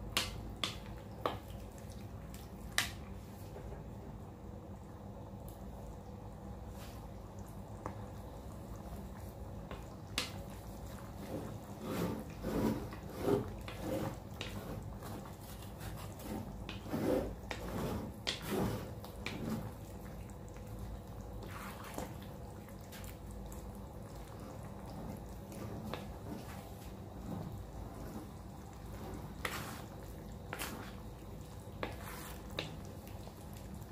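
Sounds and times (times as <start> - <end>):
steady background hum: 0.0 - 33.9
spatula stirring thick sauce: 8.8 - 33.9.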